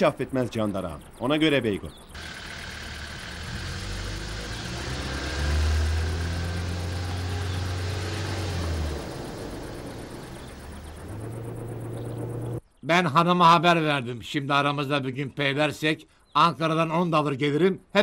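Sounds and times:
jeep engine humming: 2.2 - 12.6.

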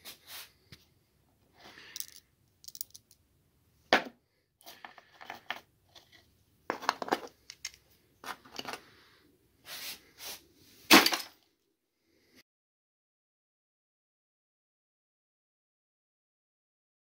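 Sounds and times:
metal pieces clinking and scraping: 1.8 - 3.2
metal pieces clattering into bucket: 1.9 - 3.2.

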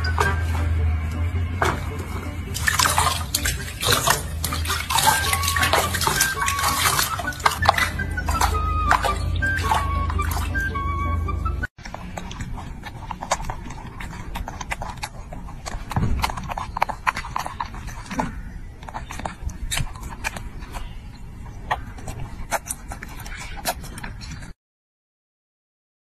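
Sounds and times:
monkey chewing smacks: 0.0 - 11.1, 11.8 - 24.6
music snippet: 0.0 - 11.7.

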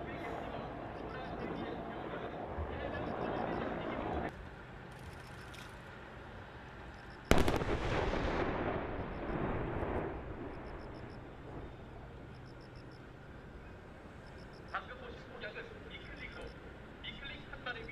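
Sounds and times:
explosion blast and rumble: 7.3 - 12.0.

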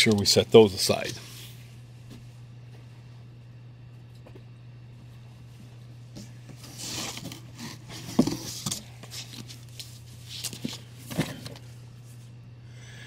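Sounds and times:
steady low hum: 0.0 - 13.0
paper rustling: 6.2 - 11.7.

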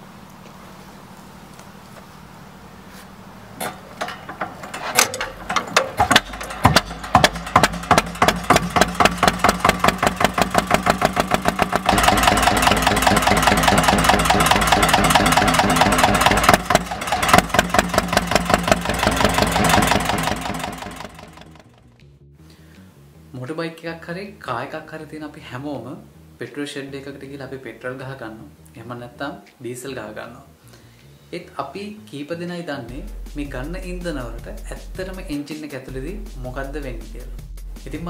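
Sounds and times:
stationary engine running: 3.6 - 21.9.

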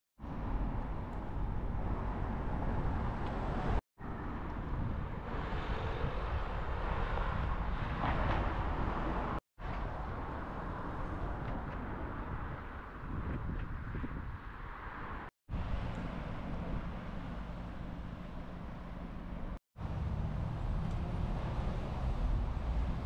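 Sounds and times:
road traffic rumble: 0.2 - 23.0
car passing: 19.8 - 23.0.

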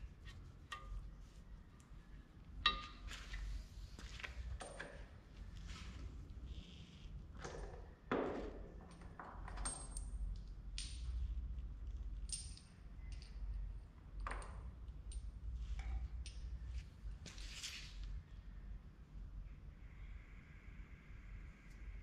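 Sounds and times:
steady low hum: 0.0 - 8.6.

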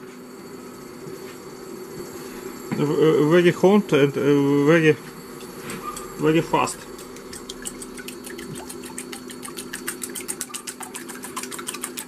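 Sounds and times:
induction cooktop hum: 0.0 - 12.0
whisk beating eggs in metal bowl: 5.4 - 12.0.

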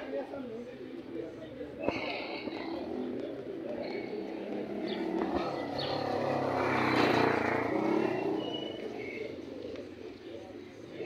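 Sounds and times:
vehicle driving past: 4.2 - 9.5.

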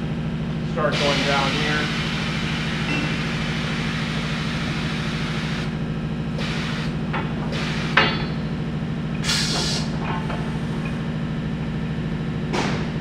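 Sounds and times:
steady low hum: 0.0 - 13.0
air hissing bursts: 1.0 - 5.7, 6.4 - 8.1, 9.2 - 10.0.

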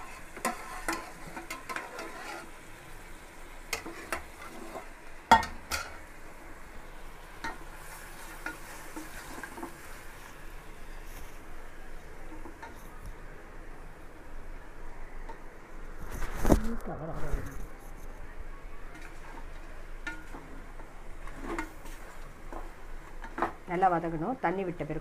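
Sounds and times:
spatula scraping and knocking pot: 0.0 - 2.5, 3.7 - 6.0, 21.2 - 23.6
chicken sizzling: 0.0 - 17.4, 18.2 - 25.0.

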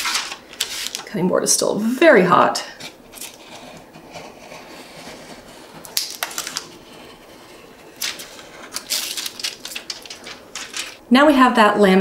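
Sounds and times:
craft knife scratching: 2.8 - 5.9, 6.6 - 8.9.

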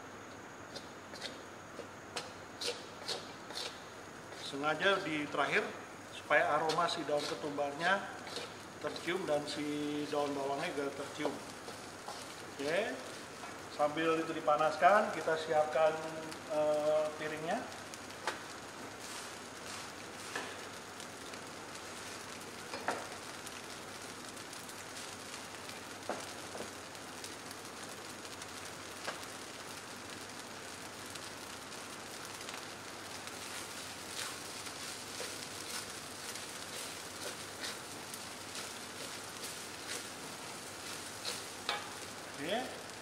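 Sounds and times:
rice sizzling in a wok: 0.0 - 43.0
spatula scraping a wok: 0.7 - 4.6, 6.6 - 7.6, 8.2 - 9.3, 11.5 - 13.4, 33.4 - 42.3.

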